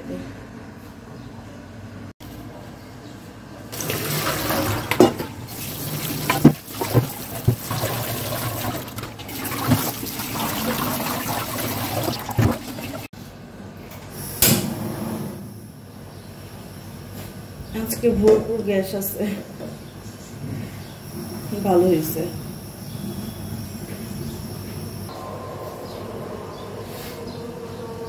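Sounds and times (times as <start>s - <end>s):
water pouring into metal sink: 3.7s - 13.1s.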